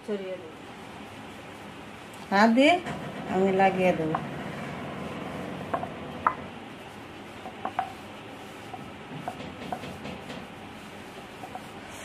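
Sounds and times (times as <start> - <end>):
steady background hiss: 0.0 - 12.0
fingers rubbing flour on dough: 3.3 - 12.0.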